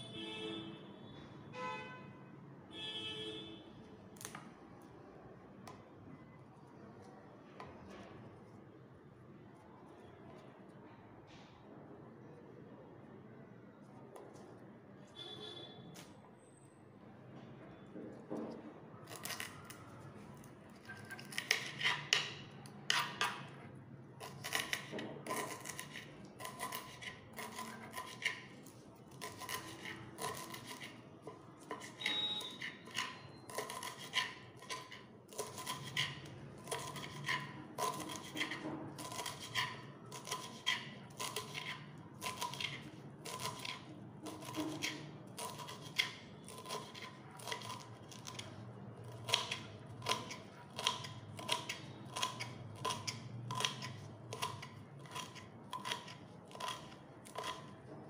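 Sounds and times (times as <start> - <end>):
knife chopping on wooden board: 24.2 - 28.5, 29.1 - 48.5, 49.1 - 58.0.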